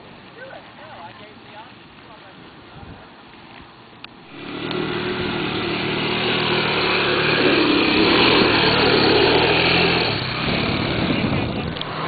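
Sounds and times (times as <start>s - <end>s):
quad bike engine under load: 4.2s - 12.0s.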